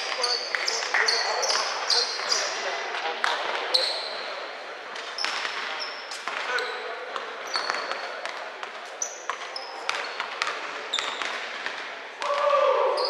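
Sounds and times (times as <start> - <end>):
sneaker squeaks: 0.0 - 2.8, 3.6 - 11.8
basketball bouncing on court: 5.2 - 12.6.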